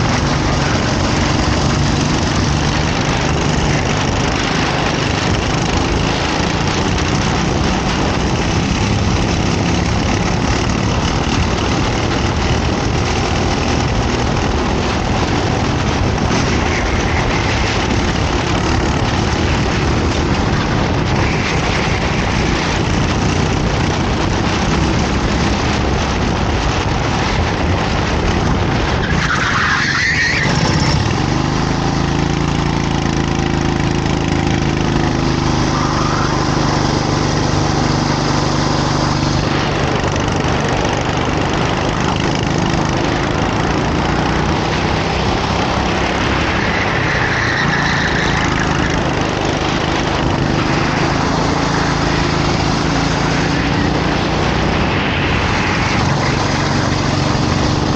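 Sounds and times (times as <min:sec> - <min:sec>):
racing kart engine running: 0:00.0 - 0:57.9
high rising squeal: 0:34.6 - 0:39.6, 0:45.3 - 0:57.9.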